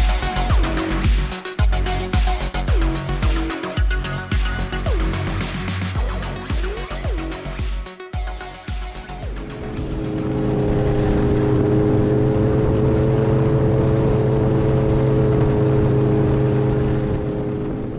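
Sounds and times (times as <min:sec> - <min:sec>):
electronic music: 0:00.0 - 0:12.0.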